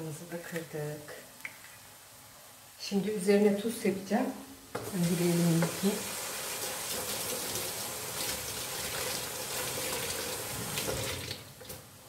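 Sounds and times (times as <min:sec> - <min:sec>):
water running from tap: 0:04.8 - 0:11.8.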